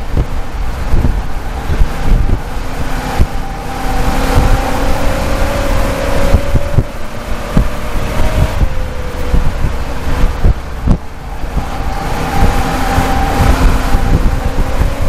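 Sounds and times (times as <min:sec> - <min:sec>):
race car engine running: 0:00.0 - 0:15.0
wind buffeting microphone: 0:00.0 - 0:15.0
car knocks and rattles: 0:06.2 - 0:15.0.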